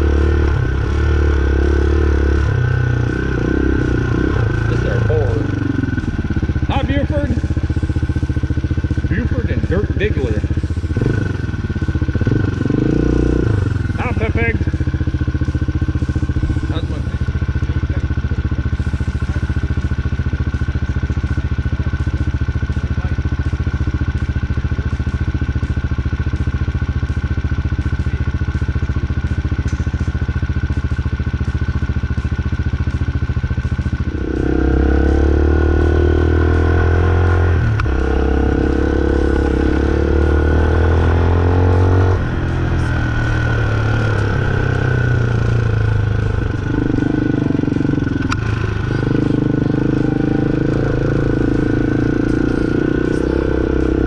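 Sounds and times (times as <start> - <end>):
motorcycle engine idling and revving: 0.0 - 54.0.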